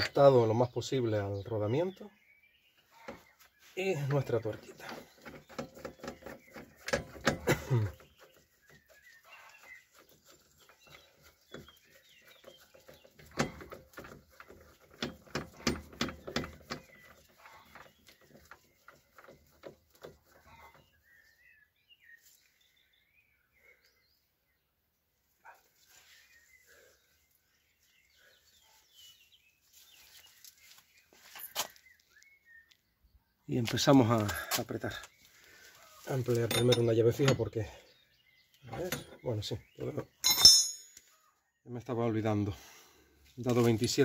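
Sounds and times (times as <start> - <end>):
metal tool clicking and clinking: 36.5 - 37.4, 40.2 - 41.0.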